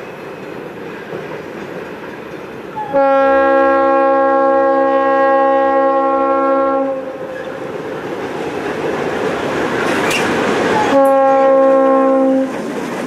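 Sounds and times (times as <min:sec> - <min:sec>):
locomotive air horn blast: 0:02.8 - 0:07.5, 0:10.8 - 0:12.6
train running rumble: 0:05.8 - 0:13.0.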